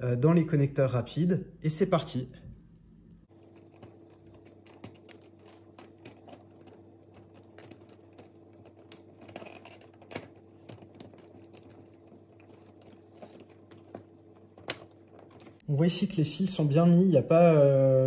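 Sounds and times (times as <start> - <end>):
faint steady hum: 0.0 - 18.0
plastic and wire clicks: 3.6 - 15.6.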